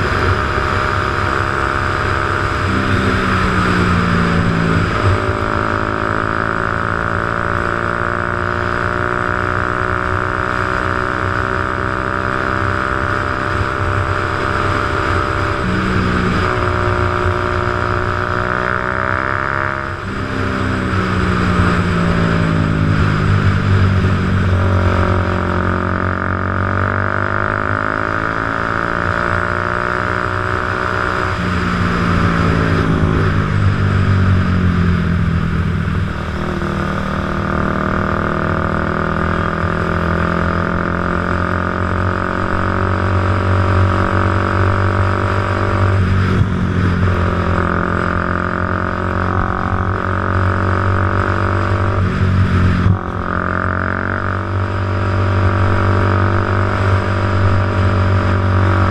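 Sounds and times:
motorcycle engine running: 0.0 - 58.9.

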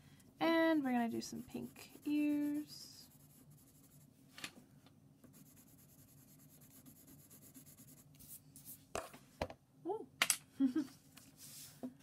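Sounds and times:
pencil scratching on paper: 1.1 - 4.1, 5.3 - 8.4.

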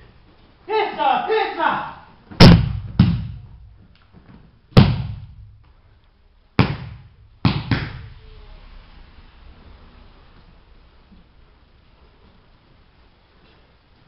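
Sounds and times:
bodies thudding on padded mats: 2.3 - 5.6, 6.6 - 8.1.

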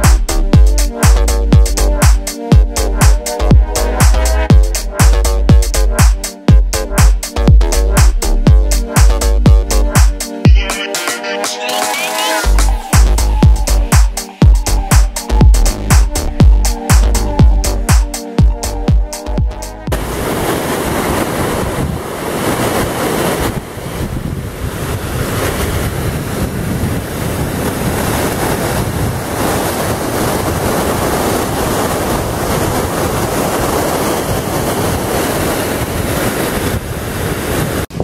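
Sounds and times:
water rushing over boulders: 19.9 - 38.0.

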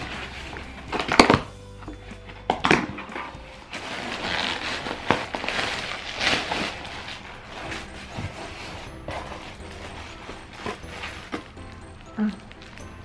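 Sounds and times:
plastic packaging crinkling: 3.6 - 13.0.

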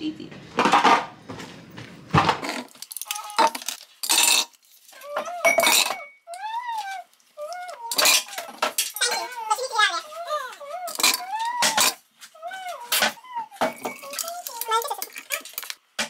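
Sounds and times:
small items clinking and rustling: 2.5 - 10.0, 13.0 - 15.8.

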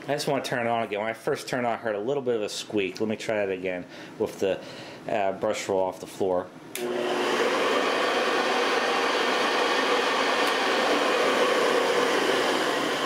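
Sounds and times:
upright vacuum cleaner running: 6.8 - 13.0.

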